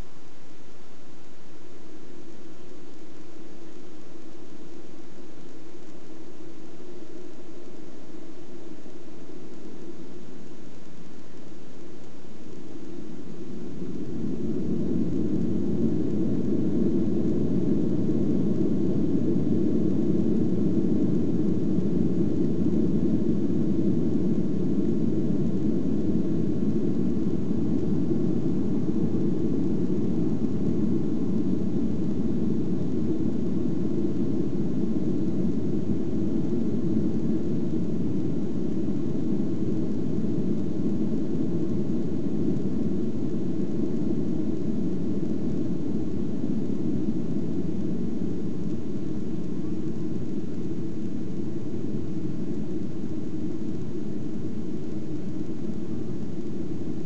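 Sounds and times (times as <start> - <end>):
jet engines rumbling: 12.7 - 57.0.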